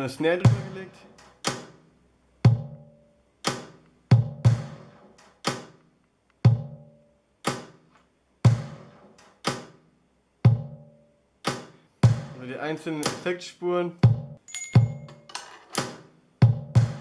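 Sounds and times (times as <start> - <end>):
homemade percussive beat: 0.4 - 1.8, 2.5 - 2.8, 3.5 - 5.8, 6.5 - 6.9, 8.5 - 9.8, 14.0 - 15.2, 15.8 - 17.0.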